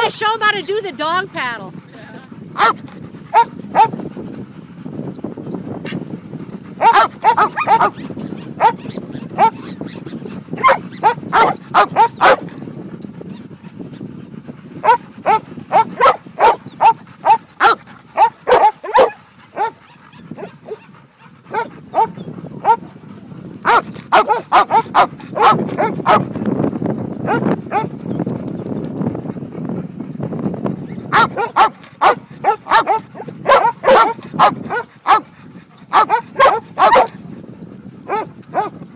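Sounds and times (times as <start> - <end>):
dogs barking: 2.5 - 4.1, 6.6 - 13.7, 14.7 - 26.4, 27.2 - 28.0, 31.1 - 37.3, 38.0 - 38.8.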